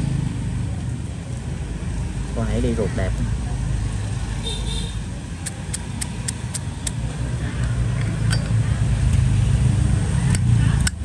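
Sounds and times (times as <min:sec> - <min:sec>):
road traffic rumble: 0:00.0 - 0:11.0
lighter metal clicks: 0:05.4 - 0:07.0.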